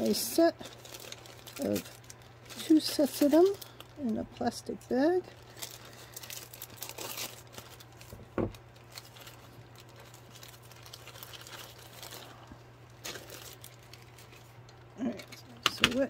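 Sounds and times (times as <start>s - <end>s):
plastic crinkling and rustling: 0.0s - 16.0s.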